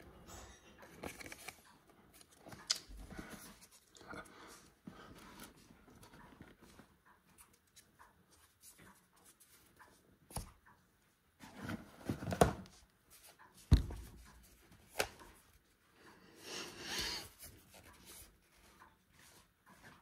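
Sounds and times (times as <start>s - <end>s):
hands rubbing and rustling: 17.2s - 20.0s.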